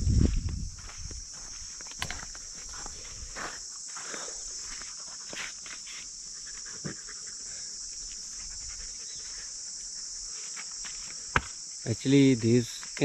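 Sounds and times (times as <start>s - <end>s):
footsteps on dry ground: 0.0s - 6.6s
insects buzzing: 0.0s - 13.0s.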